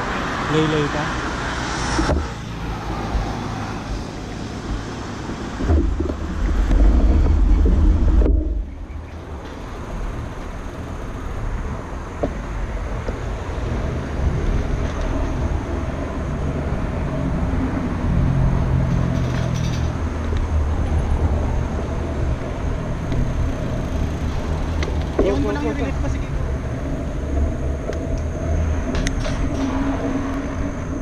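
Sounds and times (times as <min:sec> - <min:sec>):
road traffic rumble: 0:00.0 - 0:31.0.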